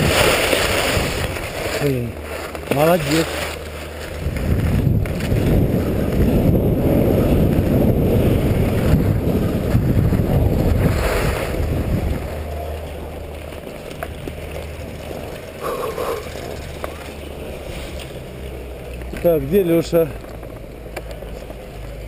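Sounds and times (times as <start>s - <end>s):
wind rushing over microphone: 0.0s - 13.3s
sliding on packed snow: 0.0s - 22.0s.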